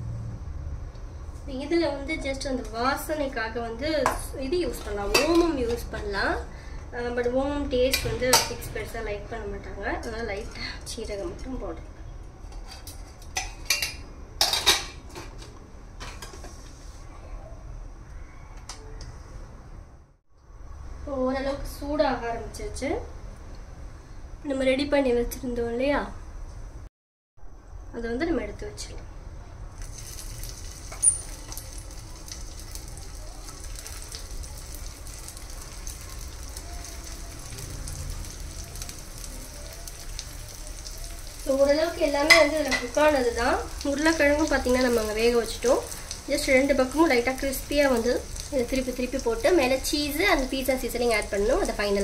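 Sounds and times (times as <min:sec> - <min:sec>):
kitchen utensils clinking: 0:04.7 - 0:06.0, 0:12.5 - 0:16.6, 0:29.9 - 0:32.1, 0:40.8 - 0:48.4
oil sizzling in a frying pan: 0:29.8 - 0:52.0.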